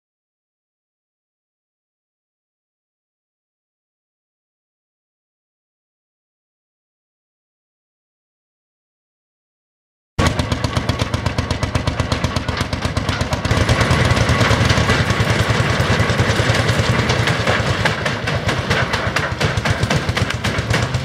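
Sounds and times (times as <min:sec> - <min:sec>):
old engine thumping: 0:10.2 - 0:21.0.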